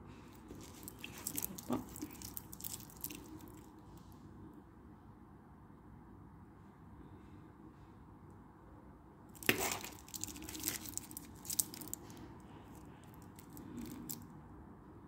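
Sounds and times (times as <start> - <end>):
plastic film crinkling: 0.4 - 3.6, 9.4 - 12.2, 13.1 - 14.2.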